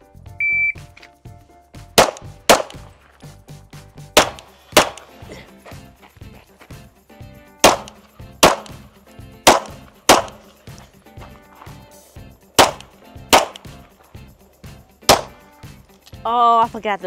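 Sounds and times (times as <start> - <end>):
pistol shots with echo: 2.0 - 2.8, 4.2 - 5.1, 7.6 - 8.8, 9.4 - 10.5, 12.6 - 13.8, 15.0 - 15.4.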